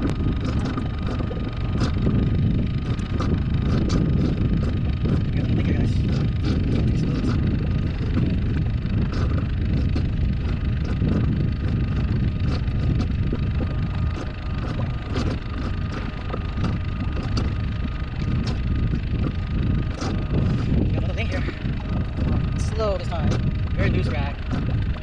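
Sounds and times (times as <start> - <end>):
water slapping boat: 0.0 - 25.0
wind buffeting microphone: 0.0 - 25.0
small ticks: 6.1 - 20.7.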